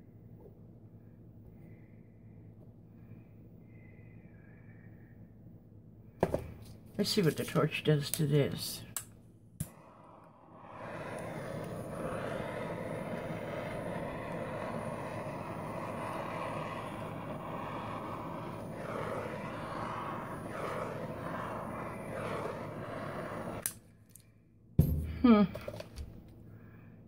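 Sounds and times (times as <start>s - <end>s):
gas torch hissing: 9.6s - 23.8s.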